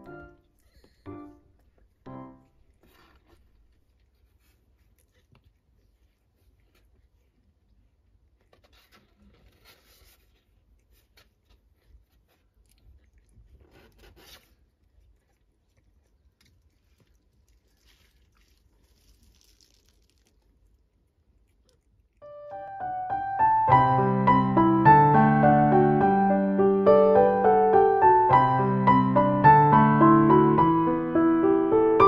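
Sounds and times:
gentle piano tune: 0.0 - 2.6, 22.2 - 32.0
kittens rustling on a blanket: 2.6 - 14.8, 16.2 - 20.6.

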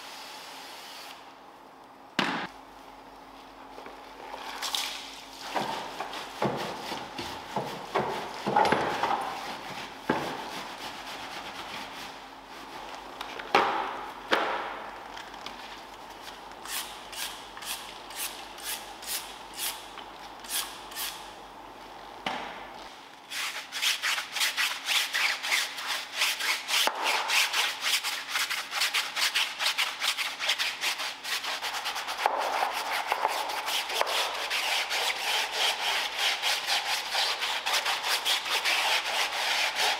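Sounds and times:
hand scrubbing surfaces: 5.3 - 13.1, 23.3 - 39.9.

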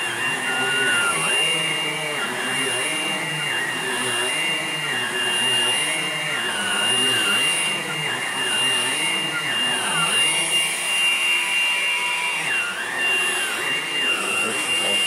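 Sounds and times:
vacuum cleaner whining: 0.0 - 15.0.

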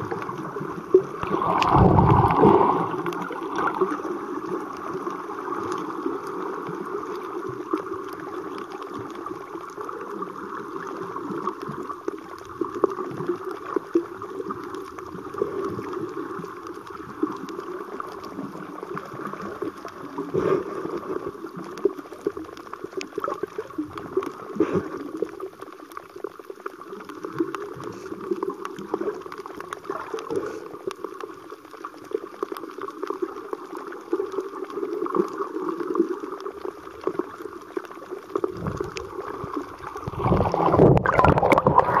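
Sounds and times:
water rushing past camera: 0.0 - 4.8, 38.4 - 42.0
water gurgling underwater: 0.0 - 42.0.

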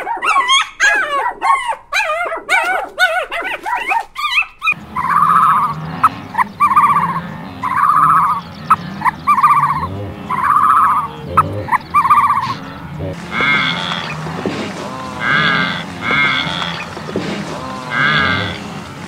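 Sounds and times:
small dog whining and yipping: 0.0 - 5.8, 11.9 - 12.6
buzzy croaking call: 3.6 - 19.0.

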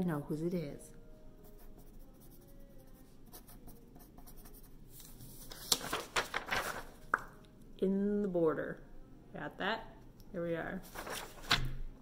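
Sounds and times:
pen scratching on paper: 1.5 - 4.8.

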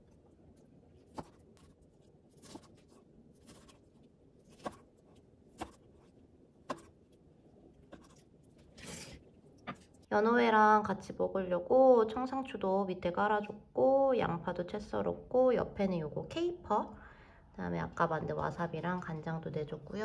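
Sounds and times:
knife slicing fish: 1.0 - 7.0, 7.8 - 9.2.

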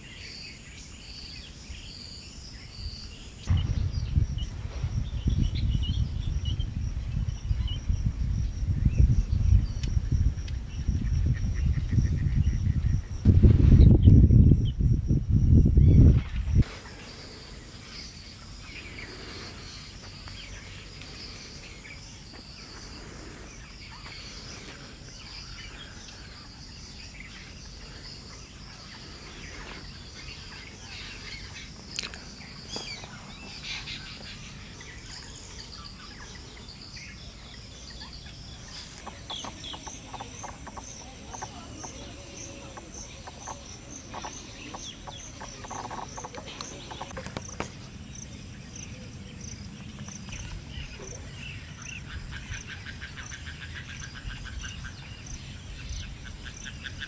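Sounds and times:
high insect buzz: 0.0 - 57.0
high insect chirping: 0.0 - 57.0
faint bird calls: 15.8 - 57.0.

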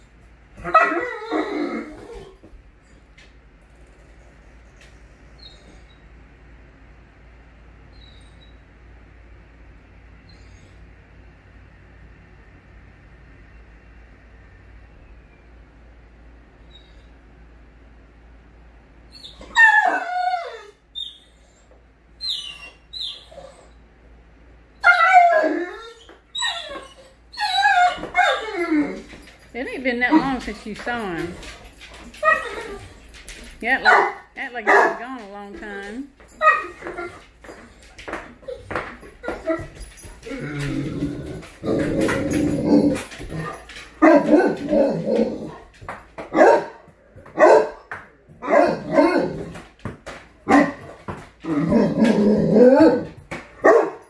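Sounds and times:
dog whimpering: 0.6 - 2.4, 19.2 - 21.6, 24.9 - 29.2, 32.1 - 33.0
dog whining: 0.6 - 2.4, 7.9 - 8.6, 19.1 - 23.8, 24.8 - 29.3, 31.8 - 33.1, 36.3 - 45.7, 50.5 - 54.0
dog barking: 33.8 - 35.0, 44.0 - 44.7, 46.3 - 46.8, 47.4 - 49.4, 50.5 - 50.9, 53.6 - 54.0.

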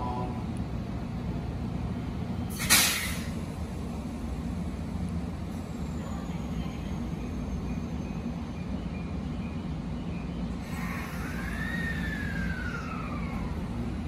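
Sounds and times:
electric train low hum: 0.0 - 14.0
compressed air hiss: 2.5 - 3.3.

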